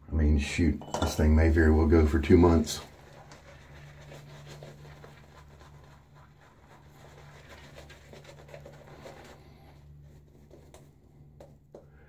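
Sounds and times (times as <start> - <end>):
shaving brush swishing on face: 2.2 - 11.1.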